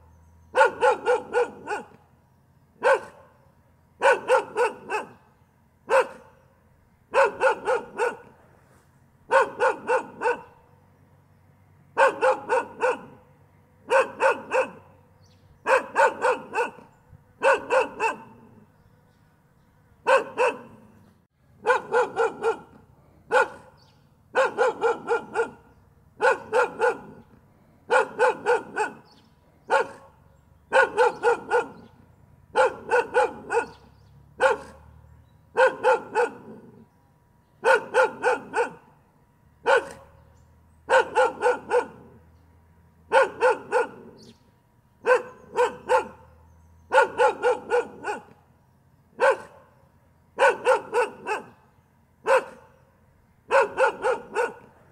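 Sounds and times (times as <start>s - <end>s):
dog barking: 0.5s - 2.0s, 2.8s - 3.4s, 4.0s - 5.3s, 5.9s - 6.4s, 7.1s - 8.4s, 9.3s - 10.6s, 12.0s - 15.0s, 15.6s - 18.7s, 20.0s - 21.0s, 21.6s - 36.8s, 37.6s - 38.9s, 39.6s - 40.2s, 40.9s - 42.2s, 43.1s - 44.3s, 45.0s - 48.4s, 49.2s - 49.8s, 50.4s - 52.8s, 53.5s - 54.9s.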